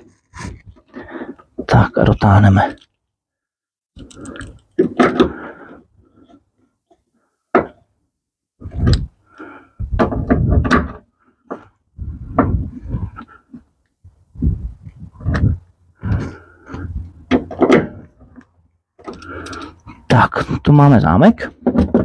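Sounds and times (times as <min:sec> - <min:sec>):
tools and metal parts clunking: 0:16.8 - 0:20.1, 0:21.6 - 0:22.0.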